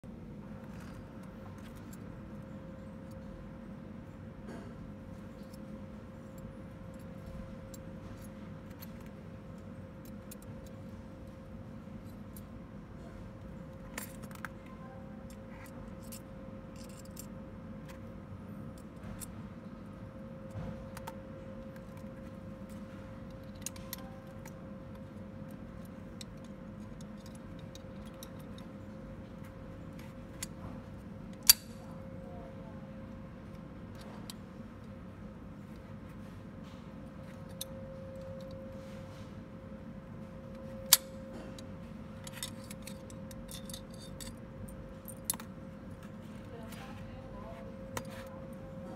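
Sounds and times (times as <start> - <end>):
steady hum: 0.0 - 48.9
small metallic clicks and clinks: 13.7 - 18.0, 20.4 - 29.0, 37.2 - 38.7, 40.5 - 45.6.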